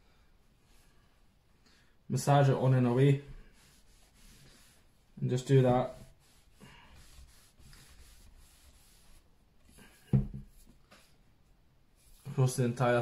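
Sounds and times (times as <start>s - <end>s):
cloth rubbing wood: 3.3s - 11.3s
thump: 10.1s - 10.5s.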